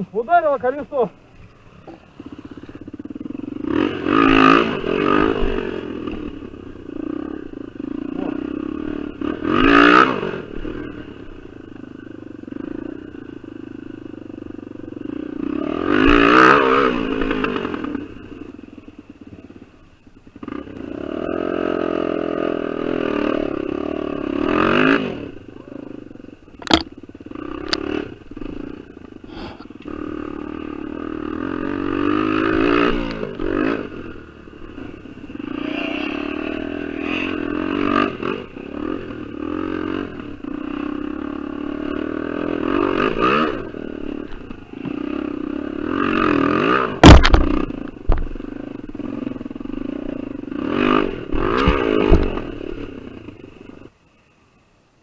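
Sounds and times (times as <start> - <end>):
dirt bike engine revving: 0.0 - 53.9
sharp knocks and rattles: 26.6 - 26.9, 47.0 - 48.4.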